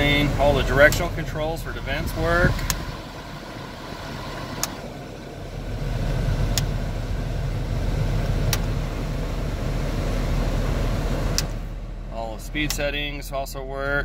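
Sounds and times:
car blower and idling engine: 0:00.0 - 0:14.0
vent buttons clicking: 0:02.5 - 0:02.9, 0:04.5 - 0:04.8, 0:06.5 - 0:06.8, 0:08.4 - 0:08.8, 0:11.3 - 0:11.6.

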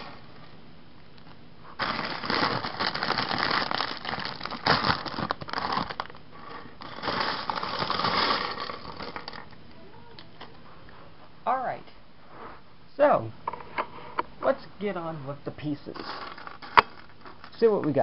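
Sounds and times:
plastic bag crinkling: 0:01.7 - 0:09.6, 0:15.9 - 0:17.6
plastic pieces clattering on table: 0:06.8 - 0:09.5, 0:16.0 - 0:17.6.

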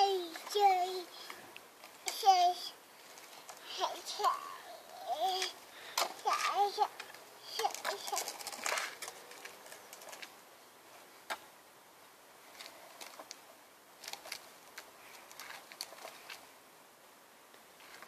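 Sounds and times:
tricycle wheels clicking on paving: 0:00.0 - 0:10.4, 0:12.5 - 0:16.4.

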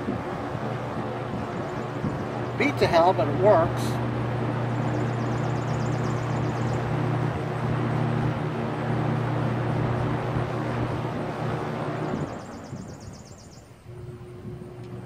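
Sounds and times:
box fan motor hum and air: 0:00.0 - 0:15.0.

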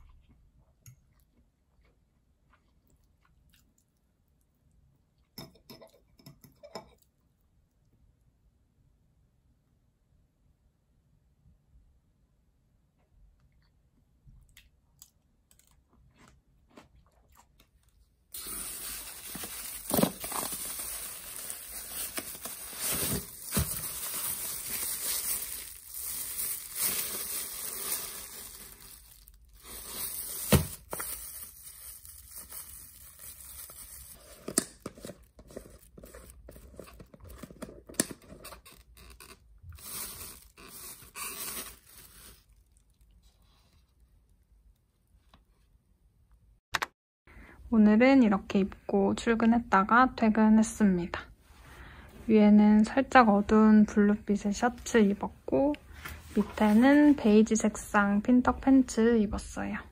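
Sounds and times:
plastic bags rustling: 0:18.3 - 0:37.0, 0:39.8 - 0:42.8, 0:55.9 - 0:57.4.

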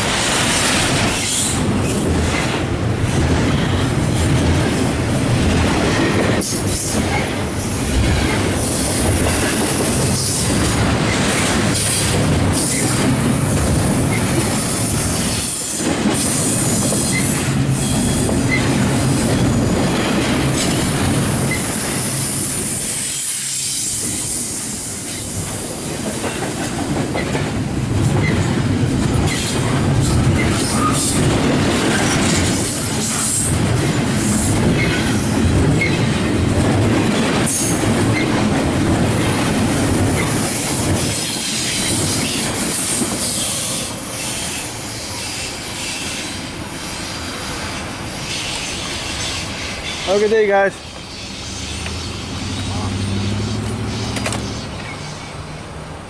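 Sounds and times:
wheels clacking over rail joints: 0:00.0 - 0:22.1, 0:25.0 - 0:44.6, 0:48.3 - 0:55.4
freight train rumbling past: 0:00.0 - 0:56.0
high wheel squeals: 0:50.9 - 0:55.3.

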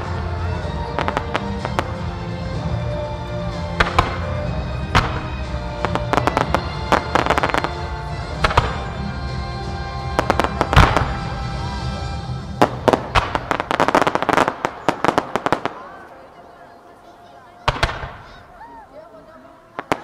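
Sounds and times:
fireworks bursting bangs: 0:00.0 - 0:16.3, 0:17.6 - 0:18.6, 0:19.7 - 0:20.0
music: 0:00.0 - 0:20.0
crackling firework bursts: 0:03.6 - 0:09.0, 0:12.6 - 0:16.3, 0:17.6 - 0:18.6, 0:19.7 - 0:20.0.

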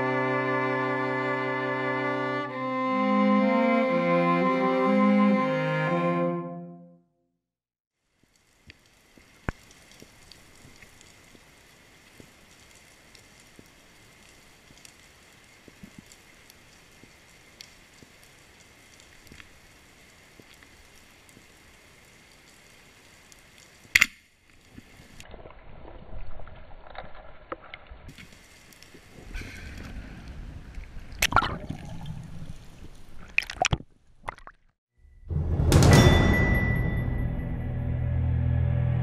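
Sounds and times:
faint underwater crackling clicks: 0:08.3 - 0:11.4, 0:12.0 - 0:19.5
water sloshing and lapping: 0:24.6 - 0:34.7
sharp water splashes: 0:31.0 - 0:34.8.

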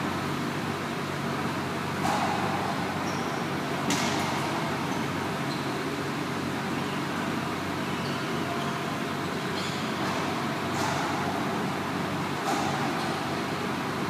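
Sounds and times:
indoor court hum and hiss: 0:00.0 - 0:14.0
racquetball smack: 0:02.0 - 0:02.8, 0:03.8 - 0:04.6, 0:10.0 - 0:11.4, 0:12.4 - 0:13.2
short high squeaks: 0:09.5 - 0:10.2.

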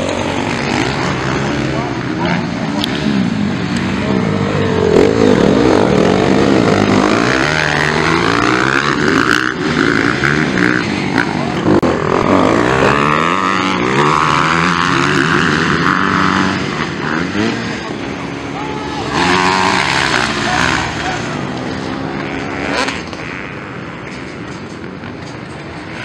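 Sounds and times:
motocross bikes revving: 0:00.0 - 0:26.0.

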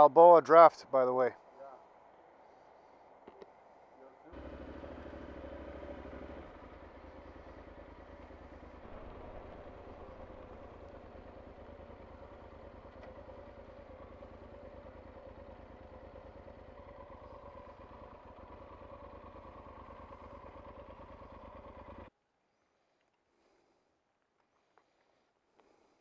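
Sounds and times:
motorcycle engine running: 0:03.2 - 0:22.1.

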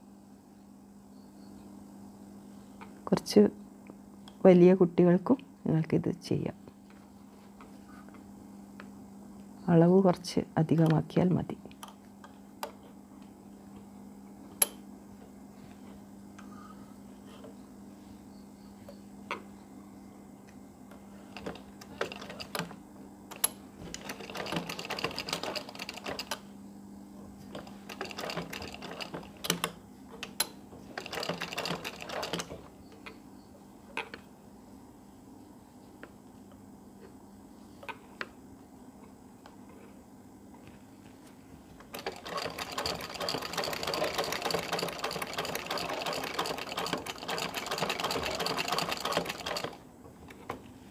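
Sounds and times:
sewing machine stitching: 0:23.9 - 0:26.4, 0:27.6 - 0:29.6, 0:30.9 - 0:32.6, 0:41.9 - 0:49.8.

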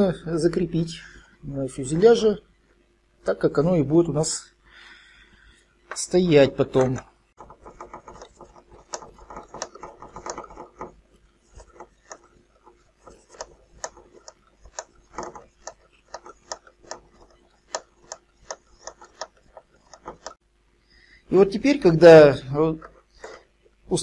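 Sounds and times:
plastic scraping: 0:05.9 - 0:20.4, 0:22.6 - 0:23.5
plastic parts clicking and tapping: 0:06.7 - 0:20.4, 0:22.8 - 0:23.5.

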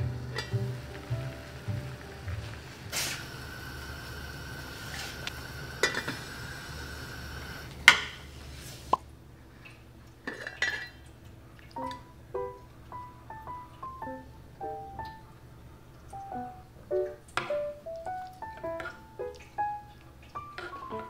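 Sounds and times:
soft piano music: 0:00.0 - 0:03.0, 0:11.6 - 0:21.0
gas stove hiss: 0:00.0 - 0:09.0.

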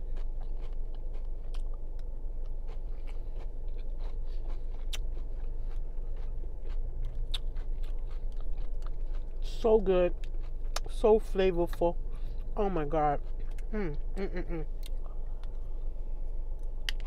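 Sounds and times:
mouth clicks and crunches: 0:00.0 - 0:11.0, 0:16.6 - 0:17.0
person chewing and biting food: 0:00.0 - 0:11.0, 0:11.6 - 0:17.0
steady low hum: 0:00.0 - 0:17.0.

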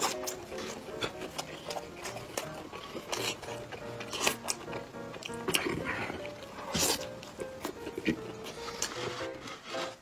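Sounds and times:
light background music: 0:00.0 - 0:10.0.

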